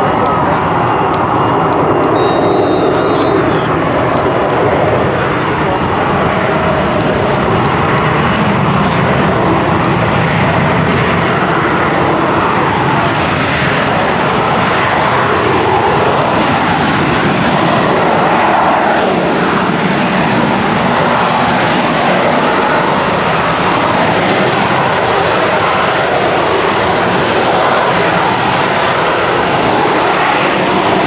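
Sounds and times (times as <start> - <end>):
jet engine roaring in hover: 0.0 - 31.0.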